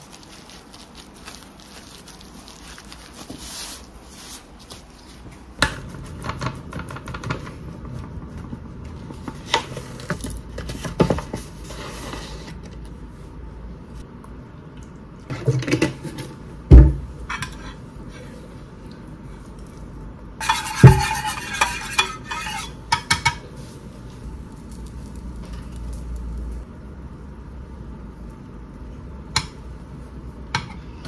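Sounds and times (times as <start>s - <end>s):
bag rustling: 0.0s - 5.3s
metal spoon scraping ceramic dish: 20.4s - 22.8s.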